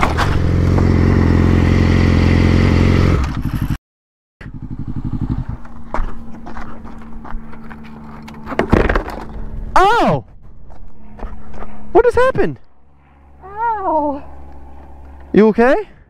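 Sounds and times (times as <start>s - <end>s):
motorcycle engine running: 0.0s - 3.8s, 4.4s - 9.7s, 12.7s - 16.0s.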